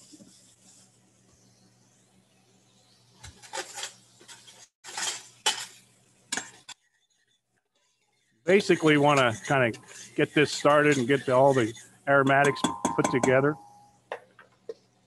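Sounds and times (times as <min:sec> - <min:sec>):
metal utensil scraping steel pot: 0:08.5 - 0:13.9.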